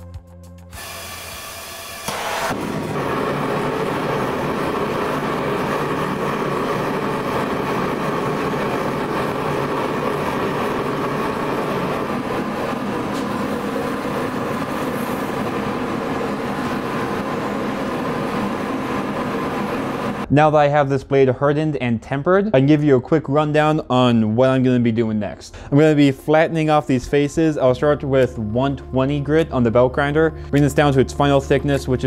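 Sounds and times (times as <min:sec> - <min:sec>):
gas forge burner running: 0:00.8 - 0:20.3.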